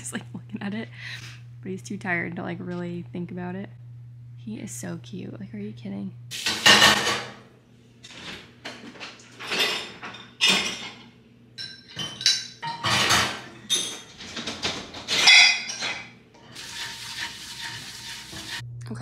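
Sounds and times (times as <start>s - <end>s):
dishes and cutlery clattering: 6.5s - 7.4s, 8.1s - 18.5s.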